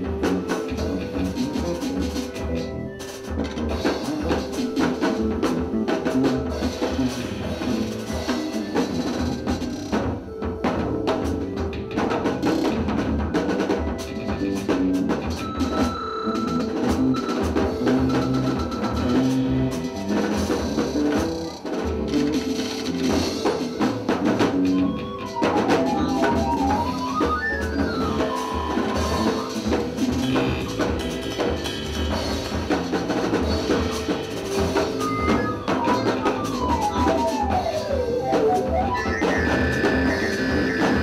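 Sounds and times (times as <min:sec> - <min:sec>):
drum kit and percussion: 0:00.0 - 0:41.0
held keyboard tones: 0:00.0 - 0:41.0
bass notes: 0:16.3 - 0:41.0.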